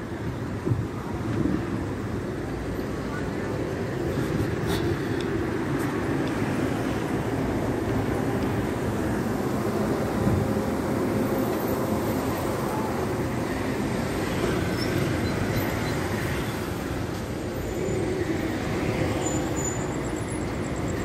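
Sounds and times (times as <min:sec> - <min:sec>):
city traffic rumble: 0:00.0 - 0:21.0.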